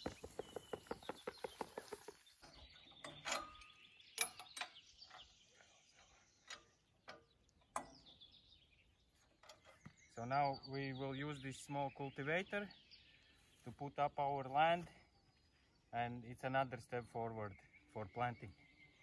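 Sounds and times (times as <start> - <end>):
rapid ticking: 0.0 - 2.3
birds chirping: 0.0 - 19.0.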